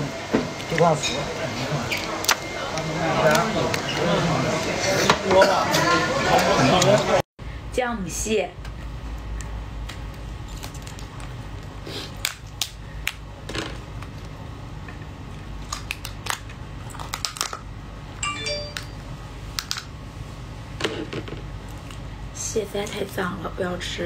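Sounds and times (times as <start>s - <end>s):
crab shell cracking: 15.6s - 17.6s.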